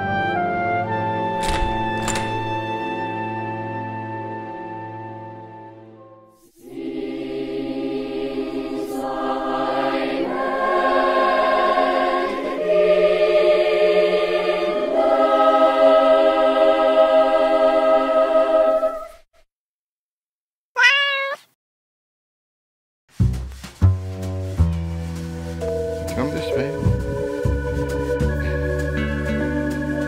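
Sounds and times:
choir-like chords: 0:03.2 - 0:19.2, 0:25.7 - 0:30.0.

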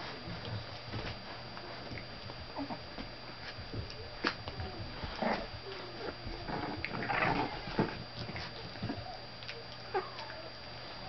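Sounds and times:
scrabbling paws: 0:00.0 - 0:10.6
puppy vocal noises: 0:04.0 - 0:10.6.

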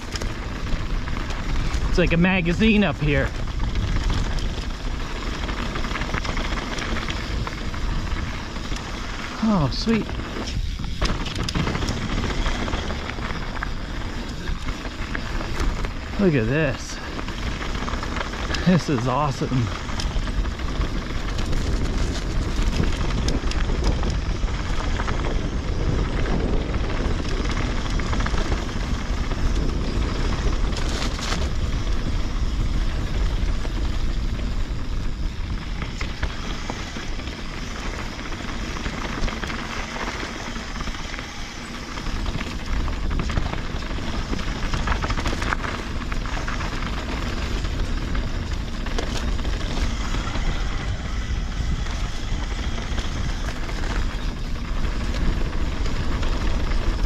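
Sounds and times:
bike rattling: 0:00.0 - 0:57.0
tyres rolling over dirt: 0:00.0 - 0:57.0
wind buffeting microphone: 0:00.0 - 0:57.0.

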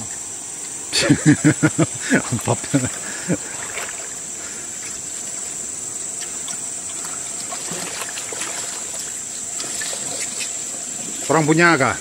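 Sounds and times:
high-pitched insect drone: 0:00.0 - 0:12.0
river water trickling: 0:00.0 - 0:12.0.

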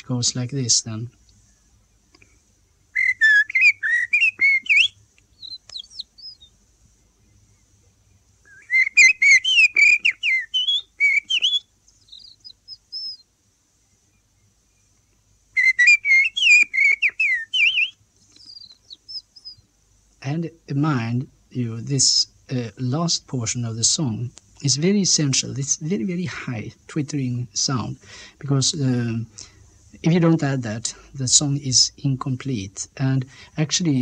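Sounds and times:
faint radio hum: 0:00.0 - 0:02.8
man whistling birdsong: 0:02.9 - 0:06.5, 0:08.4 - 0:13.2, 0:15.6 - 0:19.6.

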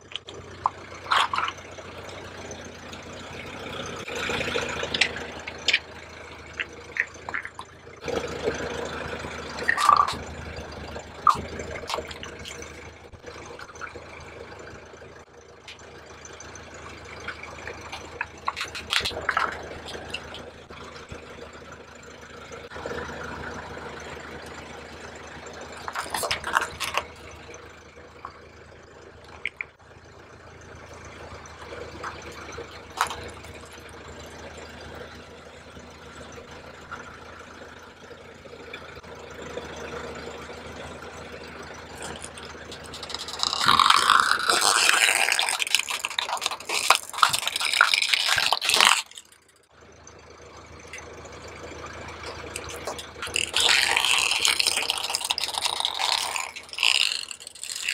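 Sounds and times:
plastic toys cracking under tyre: 0:00.0 - 0:02.2, 0:04.2 - 0:08.2, 0:09.5 - 0:10.4, 0:11.2 - 0:12.8, 0:17.2 - 0:20.5, 0:25.8 - 0:27.3, 0:29.3 - 0:29.7, 0:31.6 - 0:33.8, 0:42.0 - 0:49.7, 0:52.2 - 0:57.9
low engine hum: 0:00.0 - 0:57.9.

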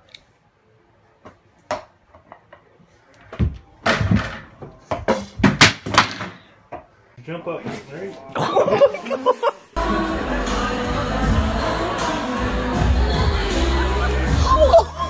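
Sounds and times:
ball hitting hoop and door: 0:03.3 - 0:06.4.

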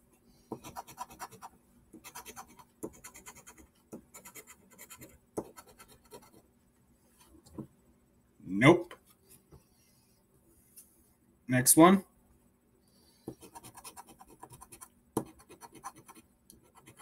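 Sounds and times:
scratching lottery ticket: 0:13.5 - 0:17.0.

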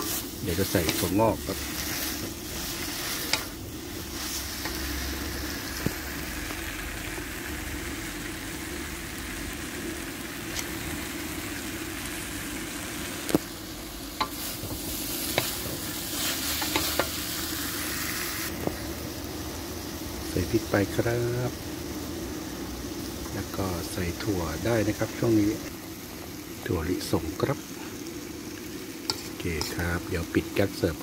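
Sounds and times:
spatula scraping and knocking wok: 0:00.0 - 0:06.6, 0:14.2 - 0:17.8, 0:29.0 - 0:29.8
noodles sizzling in wok: 0:00.0 - 0:31.0.

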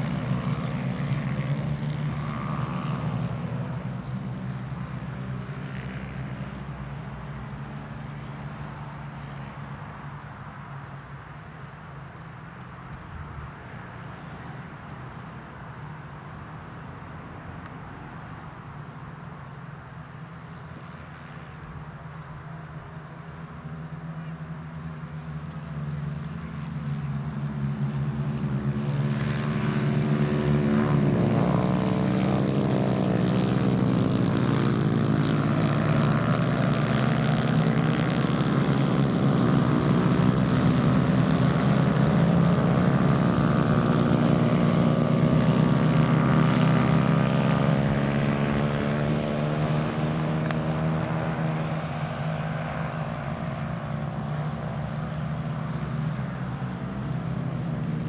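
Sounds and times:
racing kart engines passing: 0:00.0 - 0:09.6, 0:18.1 - 0:58.0.

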